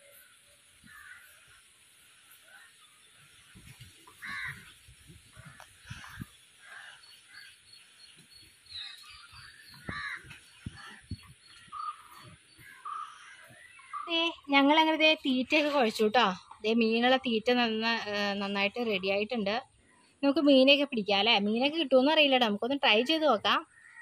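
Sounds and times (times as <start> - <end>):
birds calling: 0.0 - 16.8.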